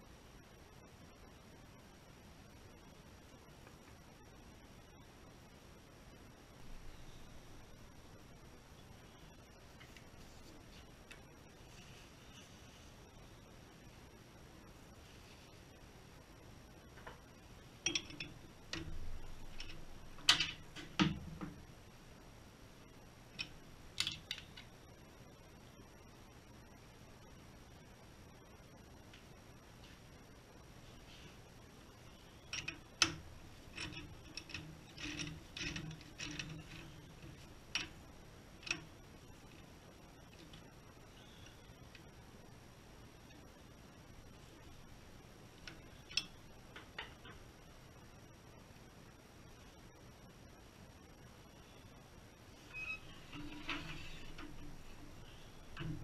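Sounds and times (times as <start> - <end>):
chuck key scraping turns: 32.5 - 38.0.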